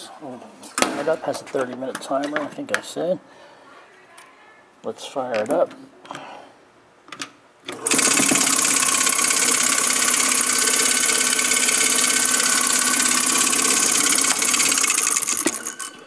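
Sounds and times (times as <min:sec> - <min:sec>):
ball mill rattling: 0:07.7 - 0:16.0.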